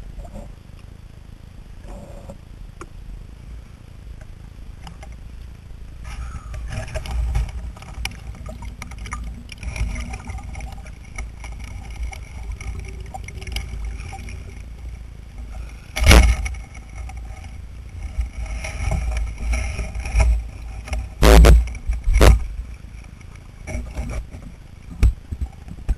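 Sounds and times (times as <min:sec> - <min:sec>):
water sloshing: 0:06.1 - 0:25.7.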